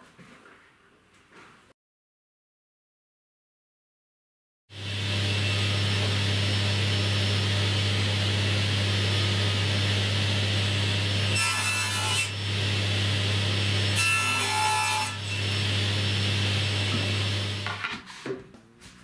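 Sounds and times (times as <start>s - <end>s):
low machine hum: 4.8s - 11.4s, 12.3s - 14.0s, 15.2s - 17.7s.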